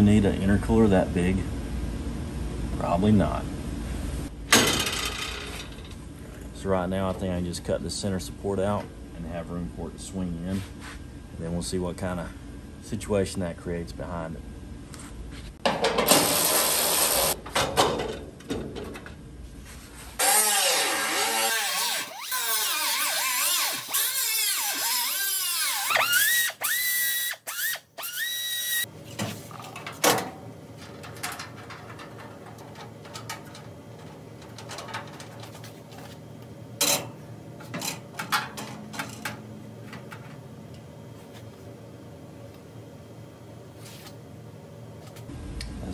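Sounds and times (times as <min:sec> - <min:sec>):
air tool cutting metal: 0:16.1 - 0:17.4, 0:20.2 - 0:28.8.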